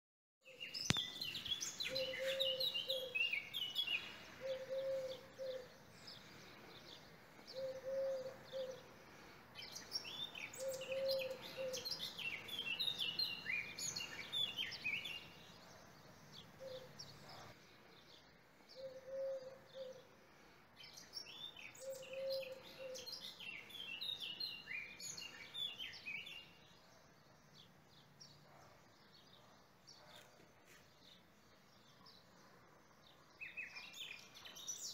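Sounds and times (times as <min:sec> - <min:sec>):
small birds chirping: 0:00.4 - 0:34.9
low bird call: 0:00.6 - 0:05.7, 0:07.5 - 0:08.8.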